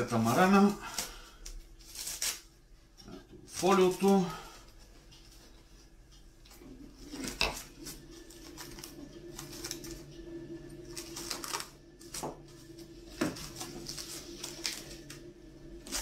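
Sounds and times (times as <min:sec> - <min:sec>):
cling film crinkling: 0:00.0 - 0:02.6, 0:10.8 - 0:16.0
faint steady hum: 0:00.0 - 0:16.0.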